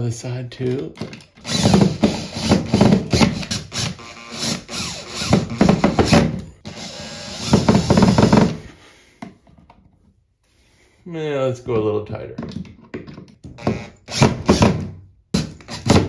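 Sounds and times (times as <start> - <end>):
cordless drill driving screw: 1.4 - 8.6.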